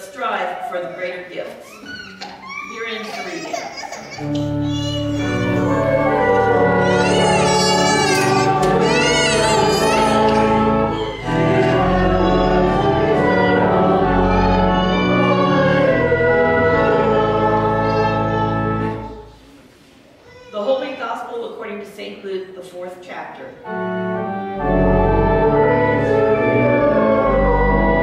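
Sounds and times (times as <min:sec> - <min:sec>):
church organ sustained chords: 0:04.2 - 0:19.2, 0:23.6 - 0:28.0
voices singing with vibrato: 0:05.0 - 0:19.2.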